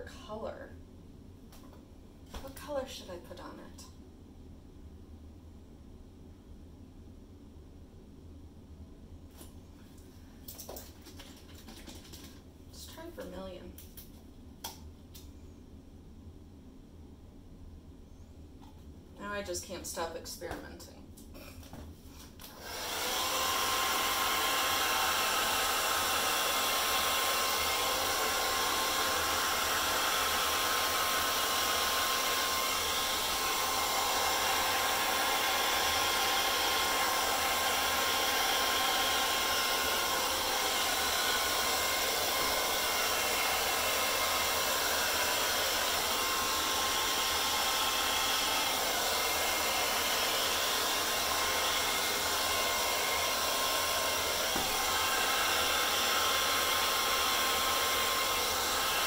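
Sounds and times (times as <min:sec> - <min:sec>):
hairdryer blowing air: 0:22.4 - 0:59.0.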